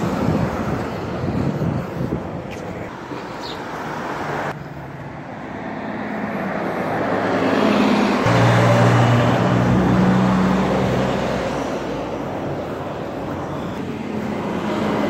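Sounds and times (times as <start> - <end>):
street traffic: 0.0 - 15.0
bus engine humming: 4.2 - 15.0.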